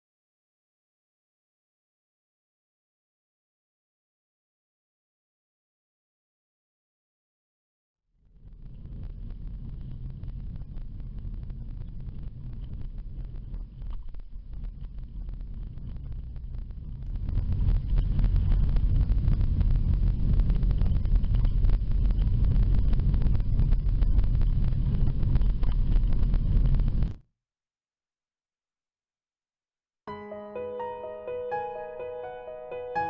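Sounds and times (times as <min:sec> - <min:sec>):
wind on microphone: 0:08.4 - 0:27.2.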